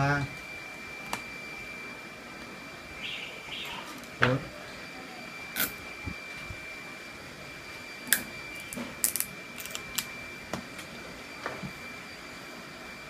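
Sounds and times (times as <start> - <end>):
faint steady high tone: 2.8 - 9.0.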